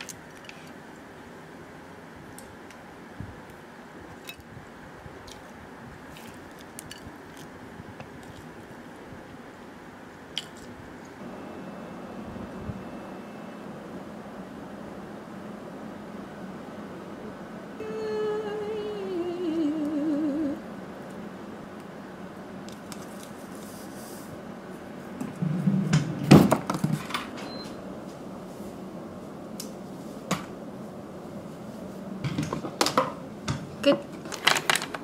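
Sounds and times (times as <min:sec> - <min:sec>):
woman humming: 0:17.2 - 0:20.7.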